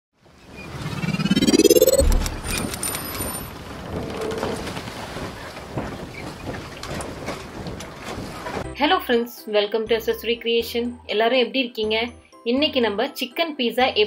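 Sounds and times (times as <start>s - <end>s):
rising sweep: 0.6s - 3.0s
rushing noise with faint crackles: 2.0s - 8.6s.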